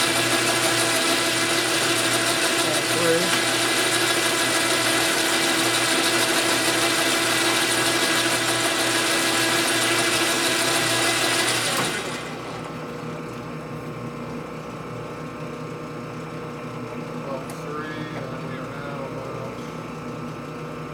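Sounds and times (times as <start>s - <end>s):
metal lathe running: 0.0s - 13.0s.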